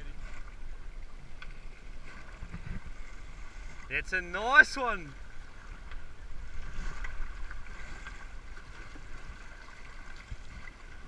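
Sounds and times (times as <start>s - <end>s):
water sloshing around boat: 0.0s - 11.0s
wind on microphone: 2.0s - 3.5s.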